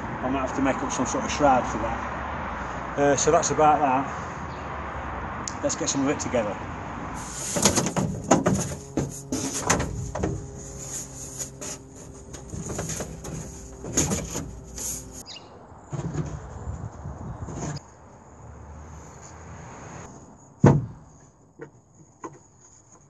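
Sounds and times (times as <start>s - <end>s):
knocks and rattles of wooden panel: 7.5s - 10.4s, 12.3s - 14.6s, 20.6s - 21.0s.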